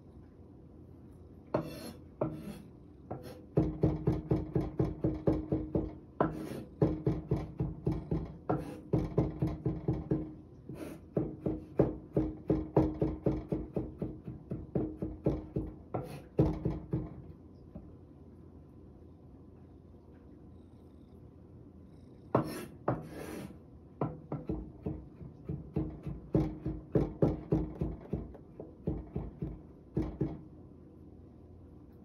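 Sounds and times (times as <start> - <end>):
kitchen knife chopping on cutting board: 1.6 - 17.1, 22.4 - 30.4.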